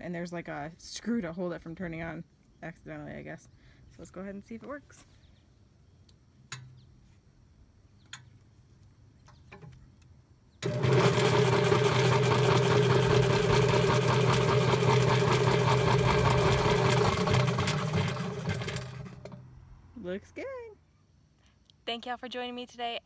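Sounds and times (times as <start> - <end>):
electric motor humming: 10.6 - 19.4.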